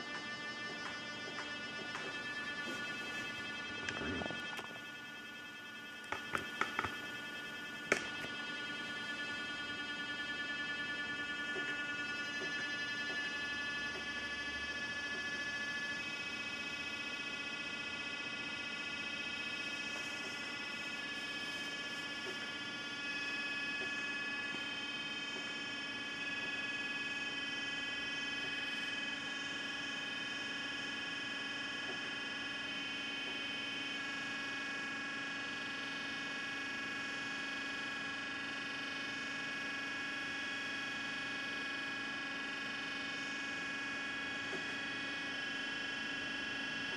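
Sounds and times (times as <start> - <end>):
buzzing electronic tone: 0.0 - 46.9.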